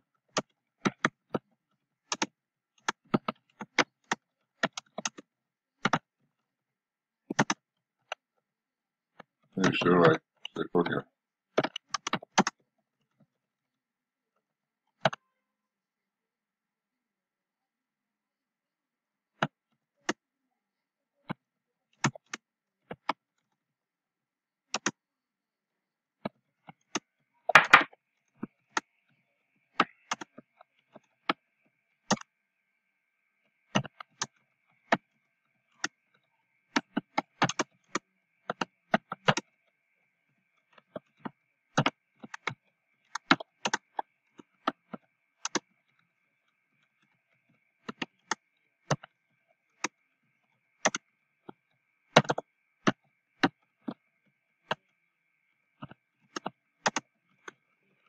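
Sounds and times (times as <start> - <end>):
keyboard keys clicking: 2.1 - 6.1, 7.3 - 8.2, 11.6 - 12.6, 24.7 - 25.0, 29.8 - 30.4, 36.7 - 39.5, 41.8 - 45.7, 50.8 - 51.0, 52.2 - 53.6, 56.3 - 57.0.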